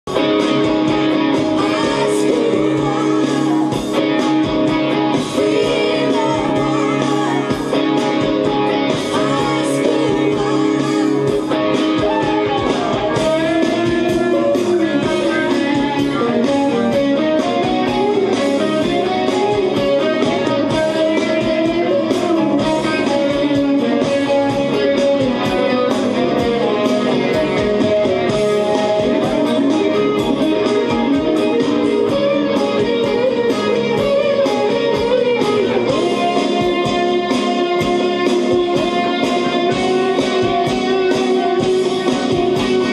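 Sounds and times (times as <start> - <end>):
electric guitar lead solo: 0.0 - 42.9
pop-rock band backing: 0.0 - 42.9.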